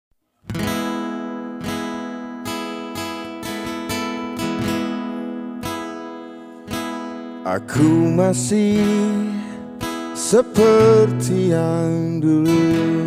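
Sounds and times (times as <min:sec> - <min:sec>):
acoustic guitar strumming chords: 0:00.4 - 0:13.0.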